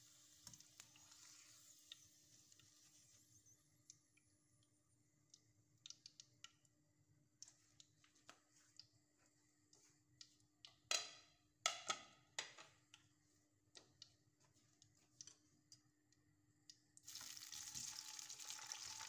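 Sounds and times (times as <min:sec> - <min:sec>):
frying oil crackling: 0:17.0 - 0:19.0.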